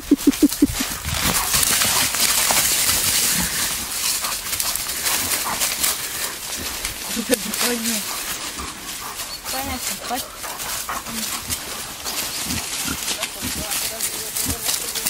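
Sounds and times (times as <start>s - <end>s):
animal footfalls: 0.0s - 9.0s
dry leaves rustling and crunching: 0.0s - 15.0s.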